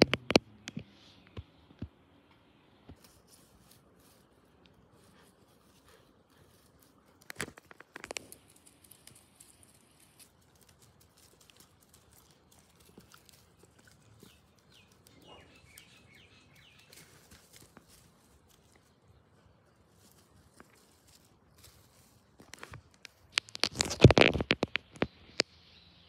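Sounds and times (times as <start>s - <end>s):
small birds chirping: 0.6s - 22.1s, 24.4s - 26.0s
puppy crunching a carrot: 4.7s - 21.4s.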